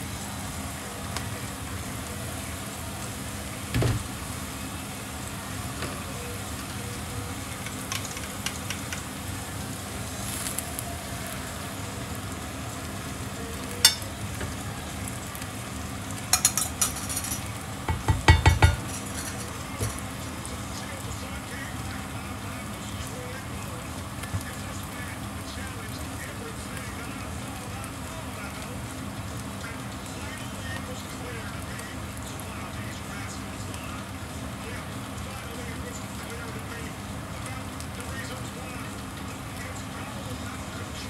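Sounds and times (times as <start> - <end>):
mushrooms sizzling in a frying pan: 0.0 - 41.0
utensil knocking against pan: 16.4 - 20.0.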